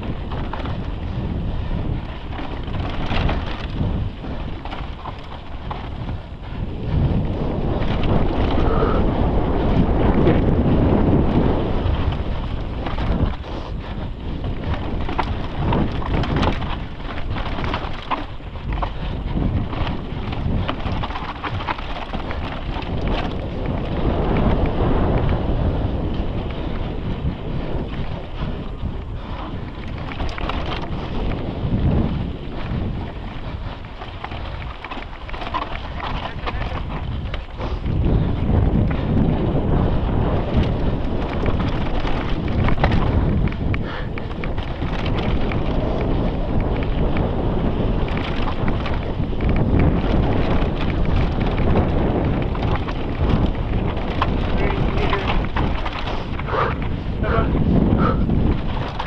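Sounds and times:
bike clattering over bumps: 0.0 - 59.0
wind buffeting microphone: 0.0 - 59.0
tyres crunching over stones: 52.4 - 56.5.

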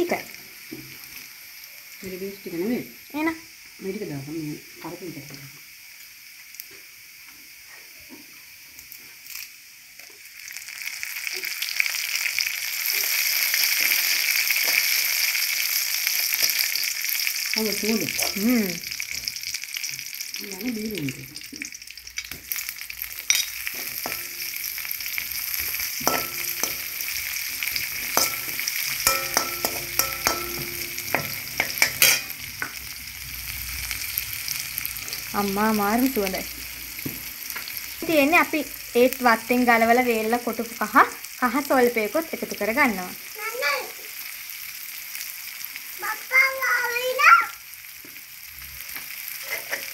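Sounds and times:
oil sizzling in a wok: 0.0 - 49.9
metal spoon scraping a wok: 23.3 - 32.8, 49.4 - 49.9.

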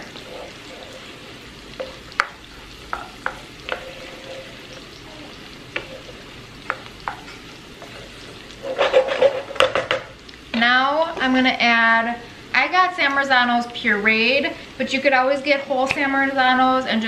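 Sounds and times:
food sizzling in a pan: 0.0 - 17.0
wooden spoon scraping and knocking pan: 1.8 - 4.8, 5.7 - 10.1.

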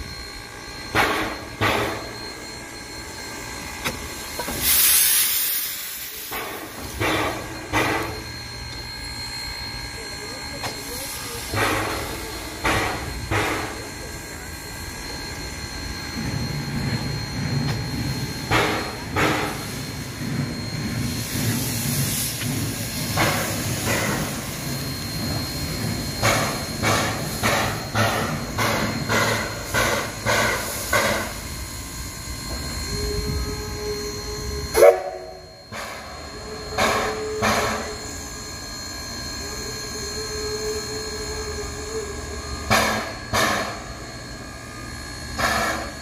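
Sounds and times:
held tone: 0.0 - 46.0
steam hissing: 4.1 - 8.3, 10.7 - 14.9, 16.3 - 38.2.

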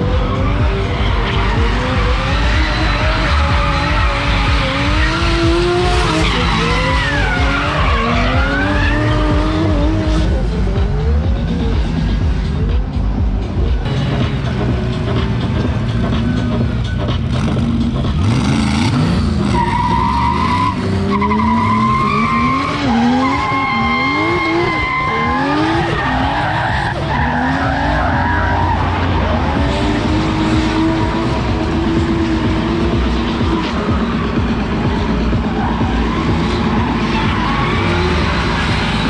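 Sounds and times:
car engines revving: 0.0 - 39.0
tyres squealing: 18.9 - 30.4, 33.4 - 39.0.

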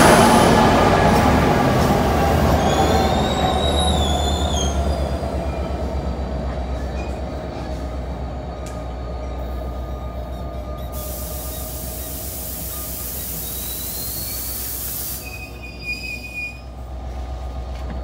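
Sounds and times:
train engine hum: 0.0 - 18.0
train wheel rumble: 0.0 - 18.0
high brake squeal: 2.5 - 5.7, 9.9 - 16.7.

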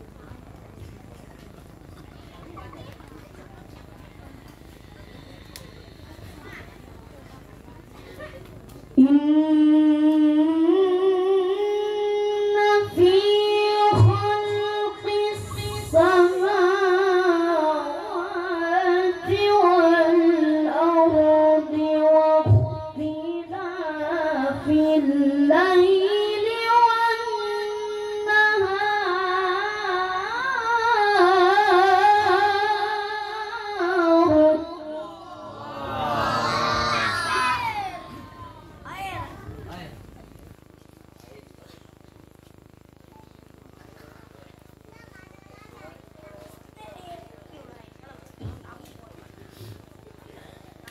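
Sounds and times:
child chanting recitation: 9.0 - 39.8, 44.9 - 47.8.

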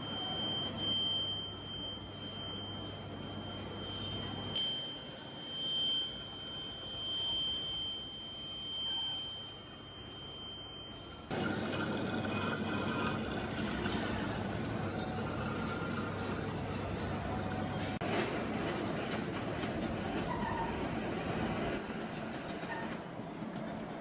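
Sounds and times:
high-pitched whine: 0.0 - 16.2
workshop noise: 11.2 - 21.9.

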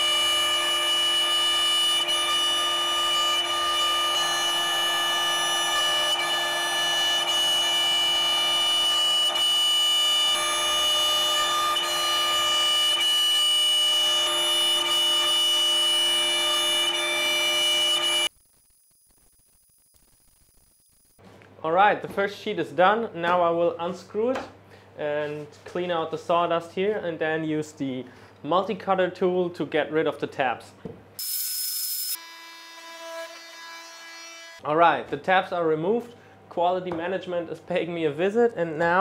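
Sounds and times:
router spindle whine: 0.0 - 21.2.

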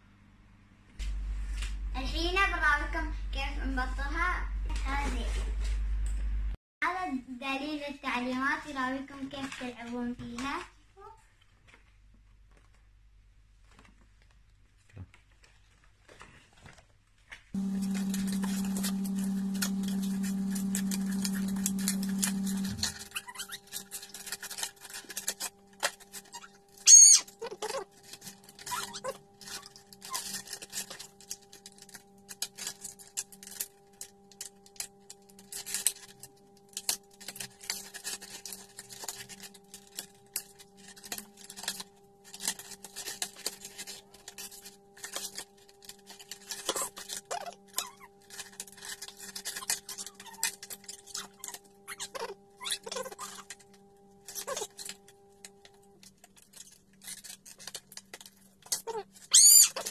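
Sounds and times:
faint electrical hum: 0.0 - 59.9
plastic packaging crinkling: 11.6 - 59.9
loud high squeak: 22.2 - 24.3, 26.2 - 27.8, 28.5 - 30.4, 49.4 - 53.5, 59.3 - 59.9.

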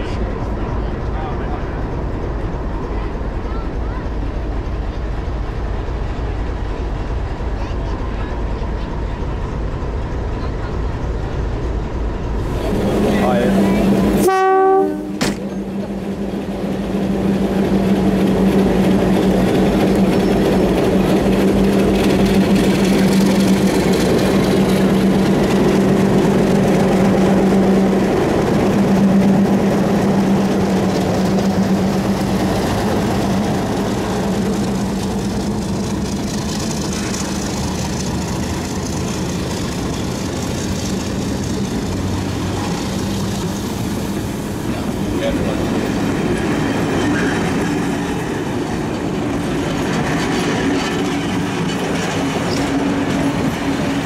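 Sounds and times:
diesel locomotive engine droning: 0.0 - 54.0.

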